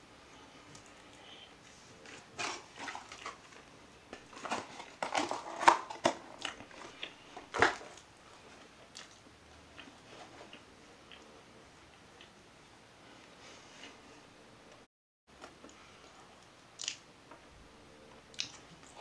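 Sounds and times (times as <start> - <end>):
wet chewing clicks and crackles: 8.9 - 9.2, 16.8 - 17.0, 18.3 - 19.0.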